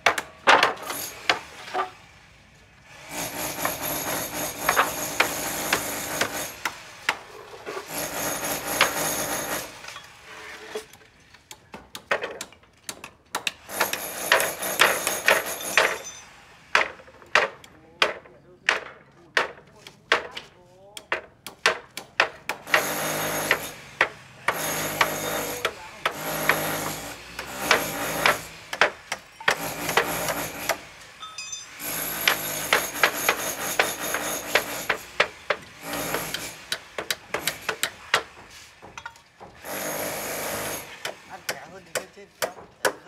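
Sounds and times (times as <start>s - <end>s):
tools scraping bricks: 0.1s - 2.0s, 3.0s - 43.0s
hand tools knocking on bricks: 3.5s - 6.4s, 11.6s - 16.2s, 16.8s - 30.8s, 31.4s - 43.0s.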